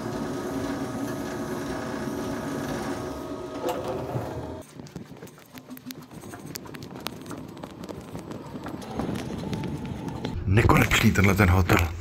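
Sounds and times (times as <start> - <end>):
building machinery humming: 0.0 - 12.0
faint clicks and taps: 4.6 - 10.4.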